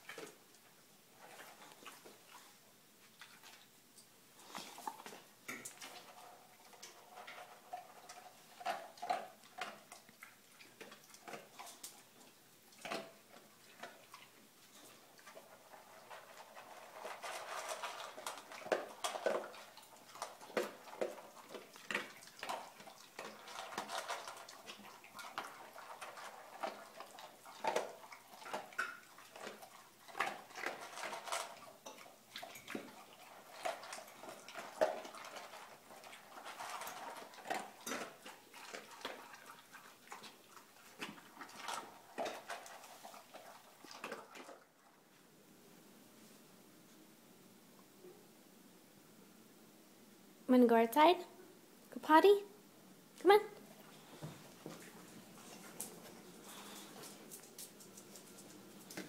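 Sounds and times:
dogs chewing: 0:00.0 - 0:45.3, 0:53.6 - 0:59.0
metal dog bowls clinking: 0:16.1 - 0:39.5.

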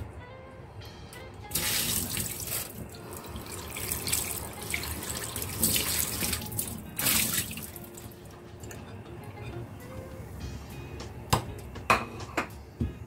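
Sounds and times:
tap water running into sink: 0:01.5 - 0:08.8.

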